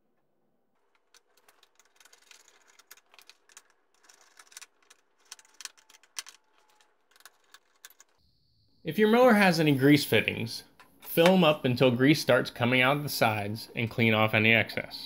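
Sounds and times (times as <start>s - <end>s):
plastic cover clicks and rattles: 0.8s - 8.2s.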